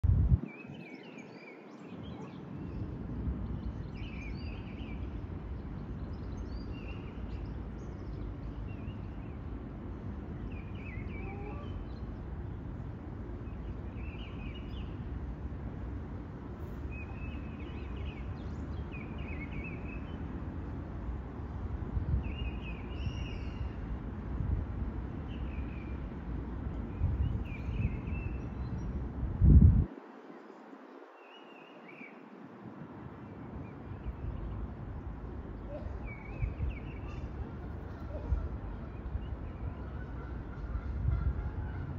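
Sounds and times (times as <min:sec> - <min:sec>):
low outdoor rumble: 0:33.1 - 0:41.9.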